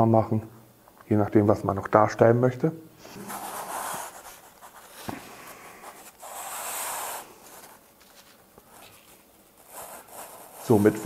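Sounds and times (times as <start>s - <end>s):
soft rubbing swishes: 3.0s - 11.0s.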